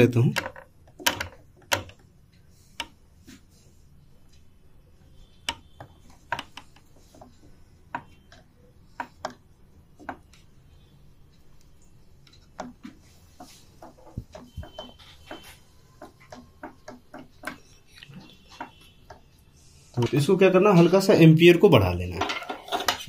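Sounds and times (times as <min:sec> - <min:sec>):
fingers tapping a motherboard: 0:00.0 - 0:02.1, 0:05.2 - 0:19.4.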